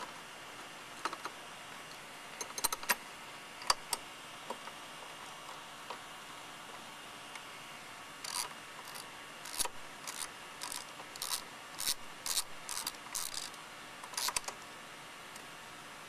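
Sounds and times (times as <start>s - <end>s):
ratchet wrench clicking: 8.2s - 14.5s.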